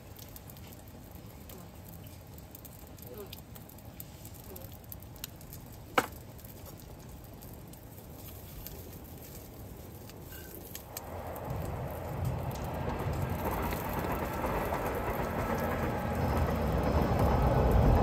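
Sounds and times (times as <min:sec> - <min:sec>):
sausages sizzling in a frying pan: 0:00.0 - 0:12.3.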